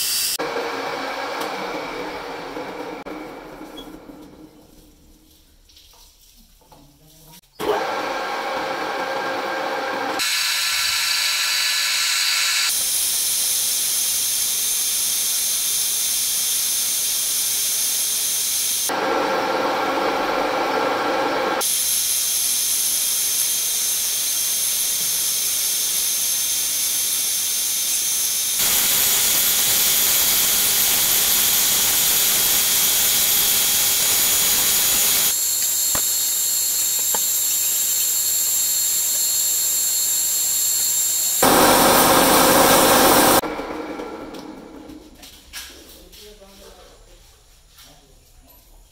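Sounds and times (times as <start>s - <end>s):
metal lathe cutting metal: 7.7s - 44.9s.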